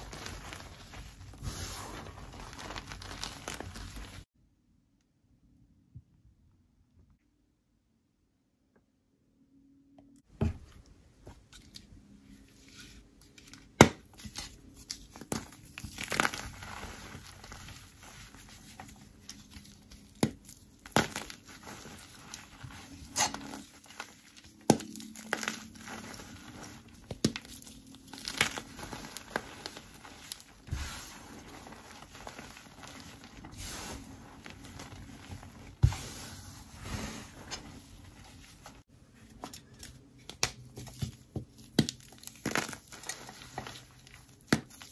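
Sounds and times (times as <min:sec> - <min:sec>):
damp chalk crumbling: 0:00.0 - 0:04.3, 0:13.4 - 0:44.9.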